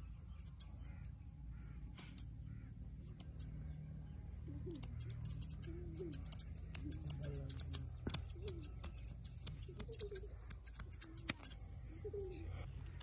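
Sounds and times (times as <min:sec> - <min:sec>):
scissors snipping hair: 0:04.8 - 0:11.6.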